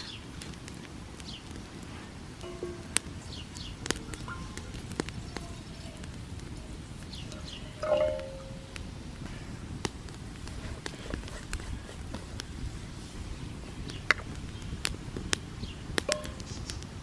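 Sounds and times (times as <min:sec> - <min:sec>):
campfire crackling: 0:00.0 - 0:17.0
metallic clink: 0:07.8 - 0:08.6.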